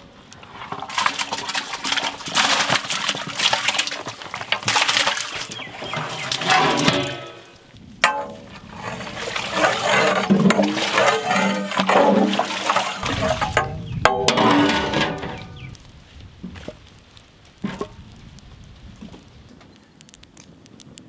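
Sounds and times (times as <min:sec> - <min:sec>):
water sloshing in metal vessel: 0:00.4 - 0:15.7.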